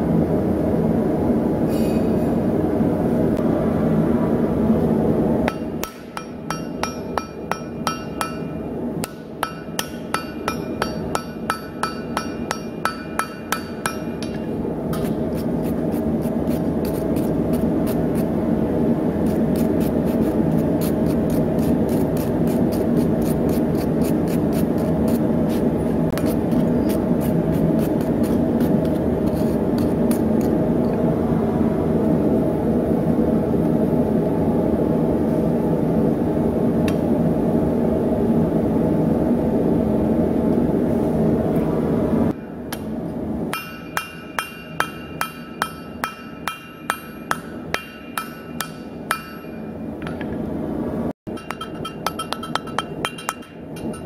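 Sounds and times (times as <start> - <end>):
loud low drone: 0.0 - 5.9, 30.8 - 42.6
hammer ringing on anvil: 5.5 - 14.6, 43.5 - 50.2, 51.3 - 54.0.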